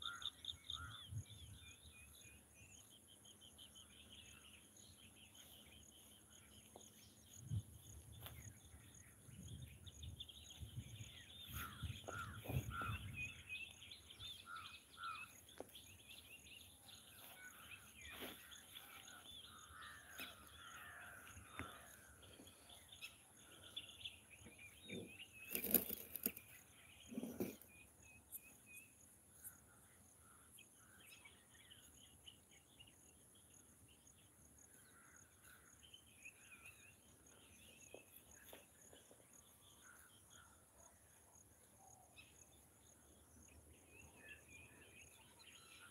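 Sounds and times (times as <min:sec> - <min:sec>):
birds chirping and calling: 0:00.0 - 0:33.1.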